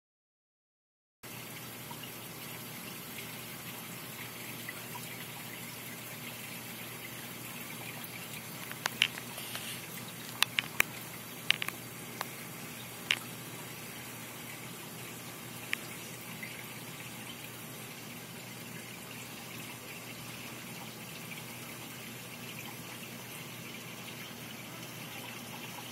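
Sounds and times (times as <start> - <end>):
water rushing and trickling: 1.3 - 25.9
sharp clicks: 8.6 - 9.3.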